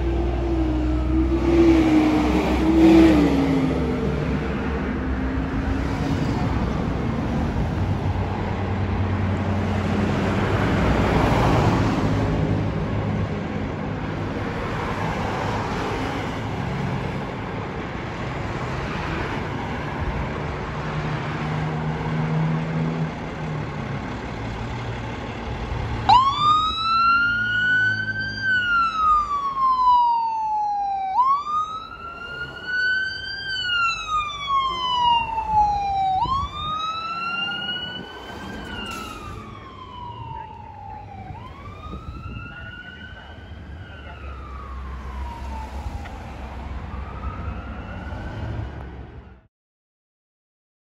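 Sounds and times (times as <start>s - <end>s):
fire engine siren wailing: 0.0s - 6.7s, 24.7s - 49.5s
road traffic passing: 0.0s - 49.5s.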